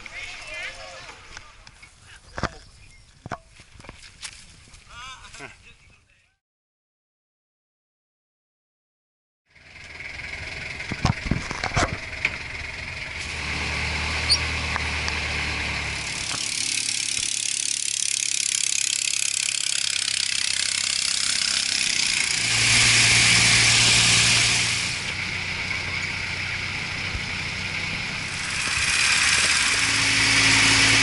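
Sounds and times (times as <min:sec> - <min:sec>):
motor boat engine drone: 0:09.5 - 0:31.0.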